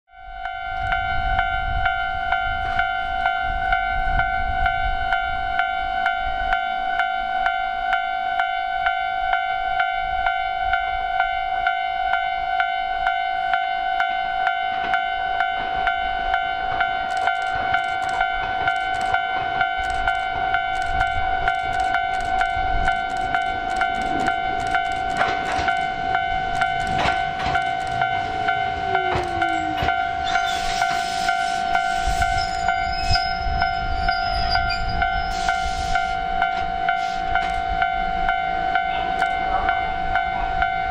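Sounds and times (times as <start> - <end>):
electric train rumbling: 0.2 - 40.9
level crossing bell dinging: 11.7 - 30.4
train brakes whining: 17.1 - 37.8
train air hiss: 30.2 - 33.2, 35.1 - 36.3, 36.9 - 37.5.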